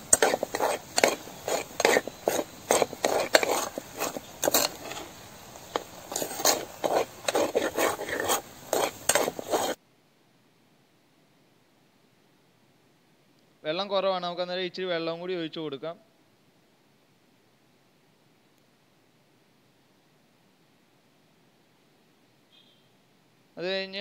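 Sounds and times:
spoon scraping a pot: 0:00.0 - 0:09.8.

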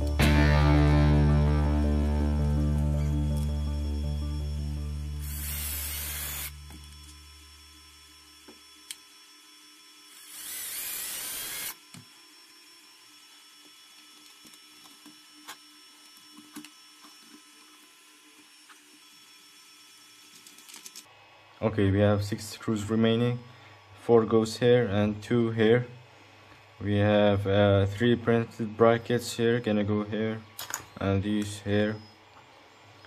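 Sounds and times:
cordless drill driving screws: 0:05.2 - 0:07.2, 0:10.0 - 0:20.9.

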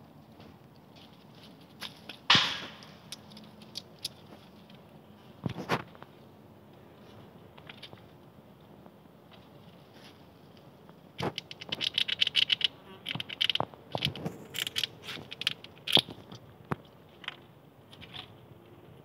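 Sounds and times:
squirrel gnawing: 0:10.5 - 0:17.4
squirrel claws scratching on wood: 0:11.2 - 0:16.4.

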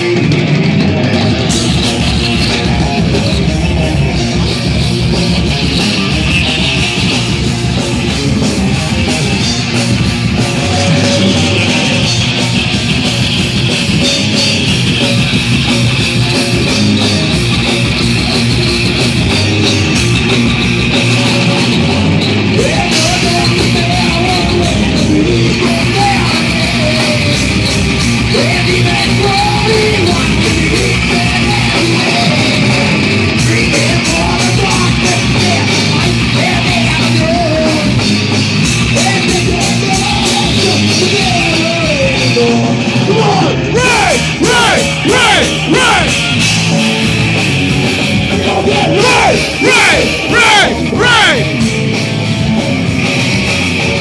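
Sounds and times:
bass guitar: 0:00.0 - 0:54.0
distorted electric guitar: 0:00.0 - 0:54.0
drums: 0:00.0 - 0:54.0
shouted vocals: 0:43.1 - 0:46.4, 0:48.4 - 0:51.6.

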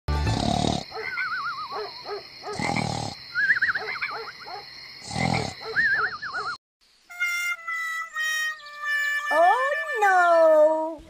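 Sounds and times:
cartoon snoring: 0:00.2 - 0:01.0, 0:02.5 - 0:03.2, 0:05.0 - 0:05.6.

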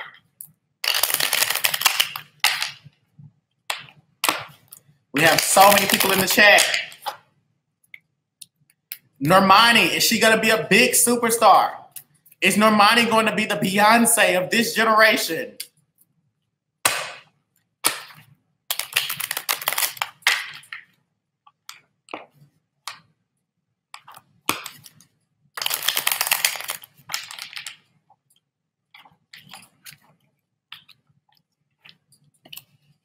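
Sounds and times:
cards being shuffled: 0:00.8 - 0:02.8, 0:04.2 - 0:07.2, 0:18.0 - 0:20.9, 0:24.0 - 0:27.8.

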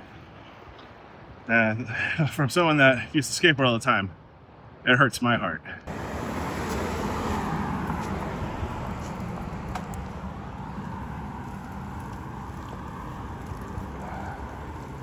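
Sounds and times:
car passing: 0:05.9 - 0:15.0
bicycle tyre noise: 0:06.0 - 0:15.0
wind rumble on microphone: 0:07.4 - 0:15.0.

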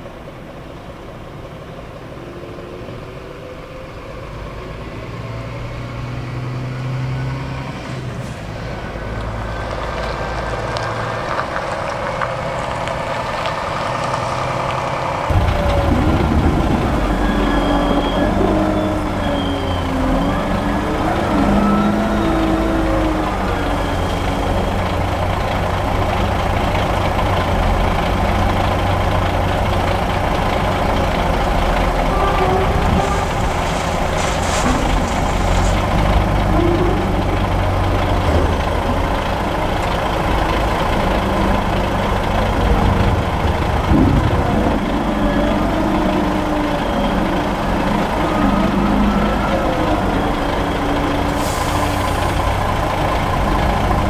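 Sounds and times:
wheel loader diesel engine under load: 0:00.0 - 0:54.0
truck engine idling: 0:08.4 - 0:54.0.

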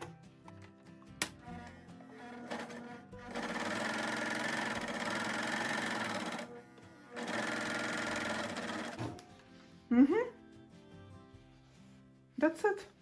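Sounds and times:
overlock sewing machine stitching: 0:02.2 - 0:06.5, 0:07.2 - 0:09.1.

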